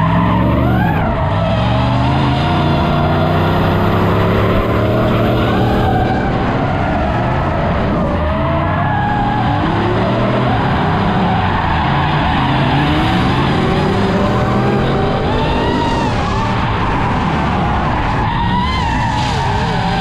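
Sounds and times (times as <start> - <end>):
car engine revving: 0.0 - 20.0
tyres skidding and squealing: 0.0 - 20.0.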